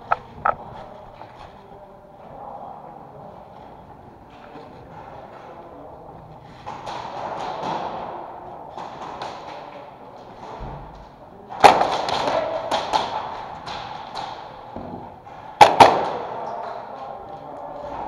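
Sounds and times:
airsoft gunfire: 11.6 - 14.4, 15.6 - 16.3.

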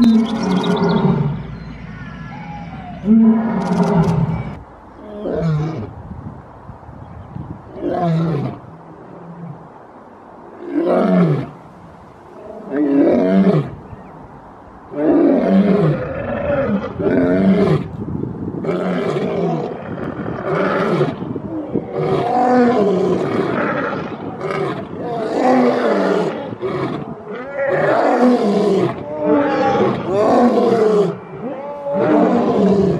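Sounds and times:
lions roaring: 2.2 - 4.6, 21.8 - 32.9.

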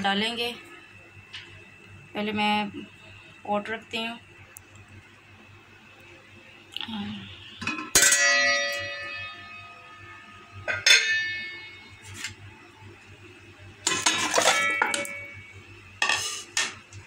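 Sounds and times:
pot clattering: 7.6 - 9.2, 10.6 - 12.2, 13.9 - 15.4.

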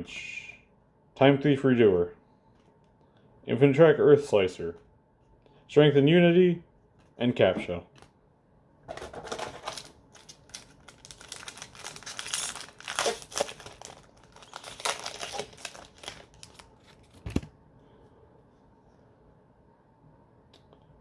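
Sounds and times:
foil wrapper crinkling: 9.2 - 17.2.

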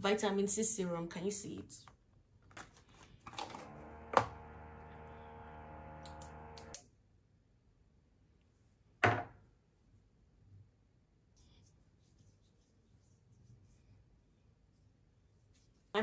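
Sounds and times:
steady buzzing hum: 3.4 - 6.8.

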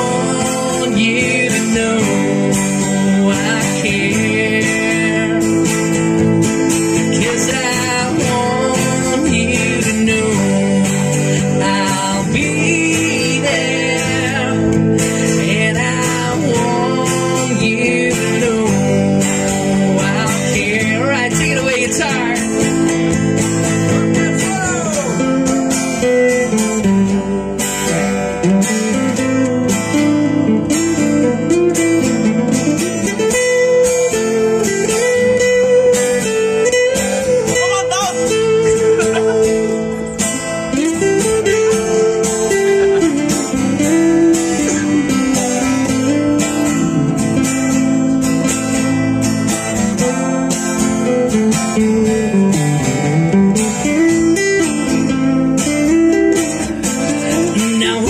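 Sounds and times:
acoustic guitars playing: 0.0 - 58.0.

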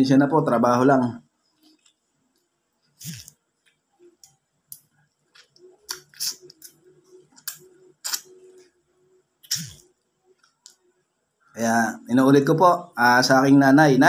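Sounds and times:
mouth smacking and slurping: 3.0 - 3.4, 5.3 - 8.4, 9.4 - 9.8.

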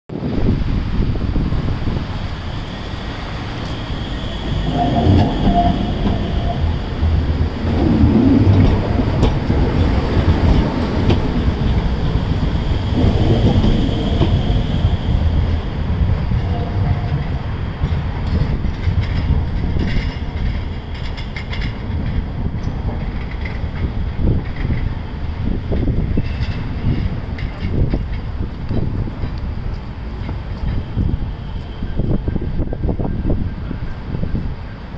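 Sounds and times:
tram wheels rumbling on rails: 0.1 - 34.9
wheels clicking over track joints: 16.4 - 31.7.

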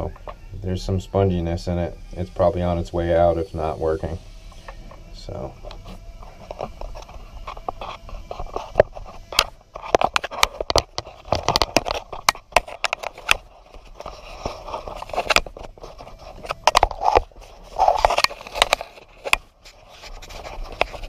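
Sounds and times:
rustling and scraping: 1.6 - 21.0
sharp clicks and knocks: 6.4 - 21.0.

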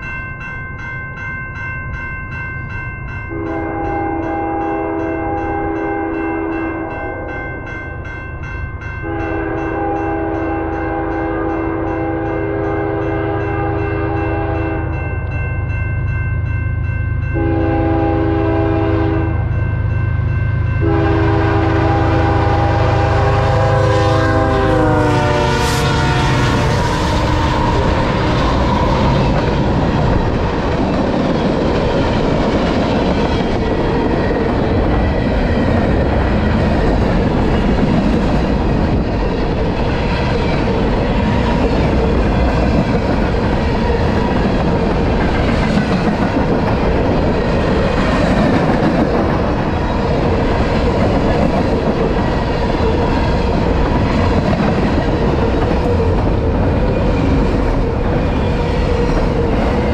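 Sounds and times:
diesel locomotives passing: 0.0 - 59.9
clickety-clack of train wheels: 20.8 - 59.9.

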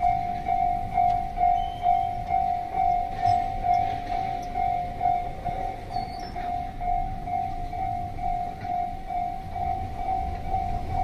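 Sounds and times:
level crossing bell ringing: 0.0 - 11.0.

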